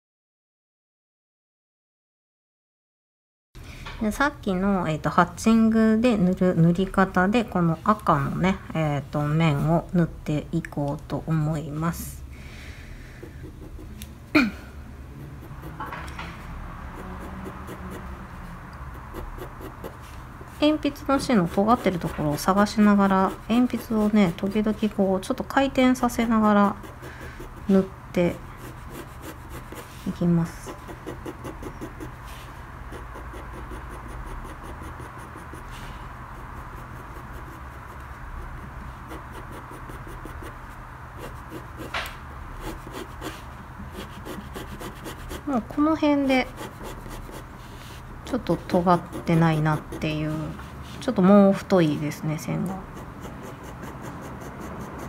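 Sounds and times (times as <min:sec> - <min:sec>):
pencil scratching on paper: 0:13.2 - 0:14.0, 0:15.1 - 0:16.0, 0:16.8 - 0:18.2, 0:18.9 - 0:25.0, 0:25.8 - 0:51.2, 0:52.6 - 0:55.0.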